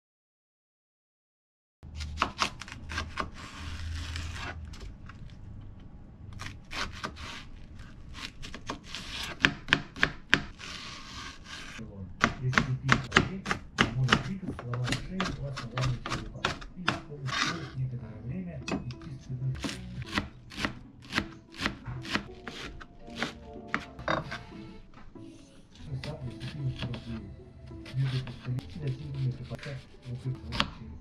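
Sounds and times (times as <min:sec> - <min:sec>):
knife chopping on cutting board: 0:02.0 - 0:04.6, 0:06.4 - 0:07.5, 0:08.2 - 0:17.8, 0:19.6 - 0:24.7, 0:26.0 - 0:27.2, 0:27.8 - 0:30.8.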